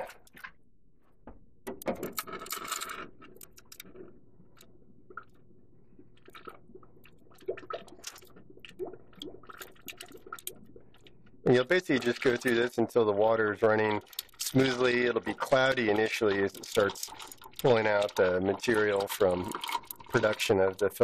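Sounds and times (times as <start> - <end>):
water dispenser spitting: 6.2 - 21.0
water splashing into sink: 6.2 - 21.0.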